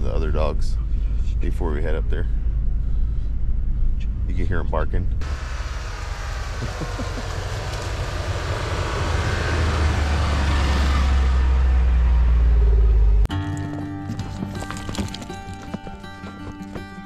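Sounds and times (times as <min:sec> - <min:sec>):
motor vehicle rumble: 0:00.0 - 0:17.0.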